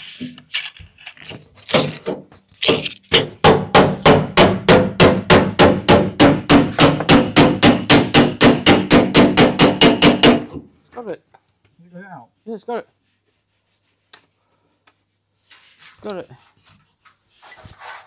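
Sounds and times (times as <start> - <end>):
hammer striking metal panel: 1.8 - 10.6.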